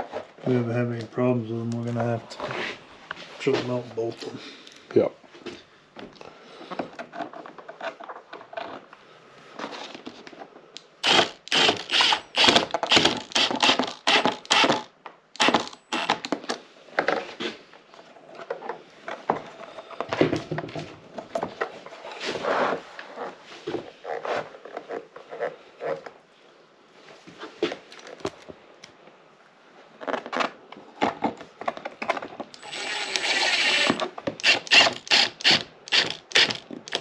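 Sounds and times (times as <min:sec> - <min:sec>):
cordless driver trigger bursts: 0:11.0 - 0:16.2, 0:32.6 - 0:37.0.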